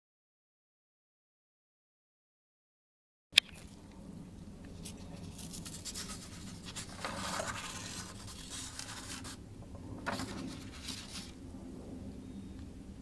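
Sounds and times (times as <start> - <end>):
steady low hum: 3.4 - 13.0
paper sheets rustling: 4.8 - 9.4, 10.0 - 11.4.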